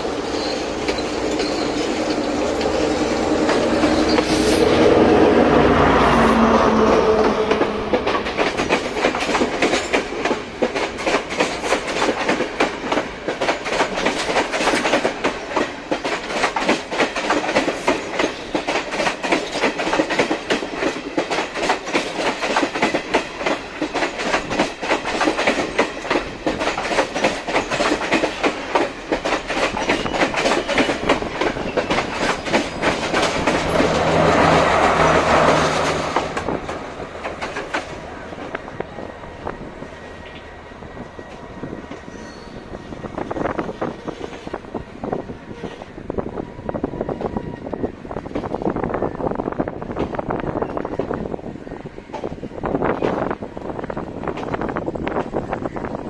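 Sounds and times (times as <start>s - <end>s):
train wheels clickety-clack: 0.0s - 5.1s, 6.4s - 39.6s, 41.1s - 56.0s
train diesel engine: 0.0s - 56.0s.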